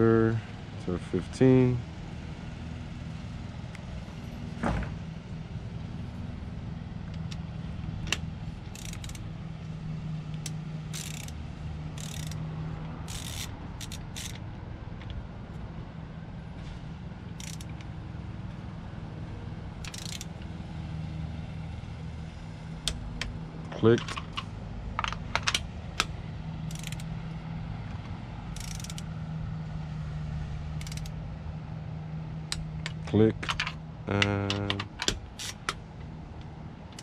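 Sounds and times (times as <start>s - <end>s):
steady low hum: 0.0s - 37.0s
torque wrench ratcheting: 8.1s - 9.2s, 10.4s - 14.4s, 17.3s - 17.8s, 19.8s - 20.4s, 26.7s - 27.1s, 28.5s - 29.1s, 30.8s - 31.2s, 34.7s - 35.8s.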